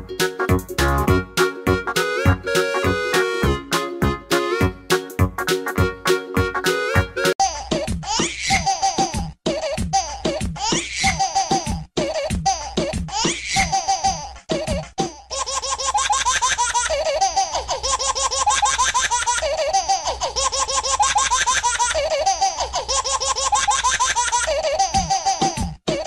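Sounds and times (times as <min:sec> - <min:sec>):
music track: 0:00.0 - 0:08.7.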